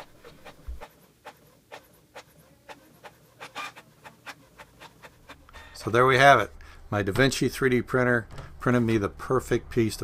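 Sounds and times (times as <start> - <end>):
inkjet printer printing: 0.0 - 5.8.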